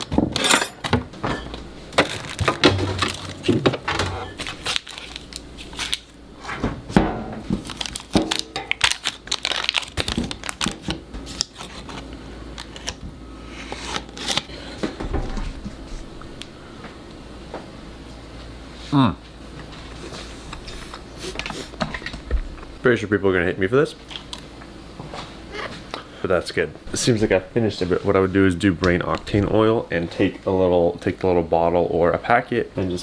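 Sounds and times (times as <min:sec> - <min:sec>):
refrigerator door opening: 0:00.1 - 0:04.5
foil wrapper crinkling: 0:02.0 - 0:03.7, 0:04.3 - 0:06.2, 0:07.5 - 0:13.0, 0:13.6 - 0:14.8.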